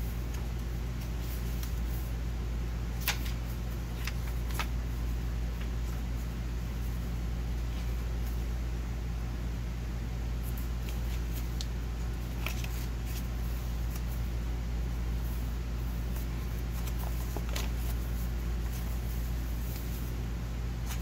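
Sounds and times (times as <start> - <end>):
paper pages rustling: 0.1 - 2.2, 3.0 - 8.5, 10.4 - 14.3, 15.2 - 20.2, 20.8 - 21.0.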